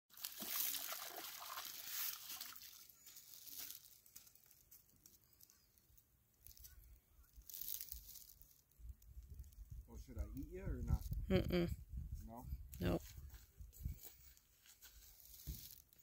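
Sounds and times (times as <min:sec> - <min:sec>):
fish splashing in shallow water: 0:00.1 - 0:03.8.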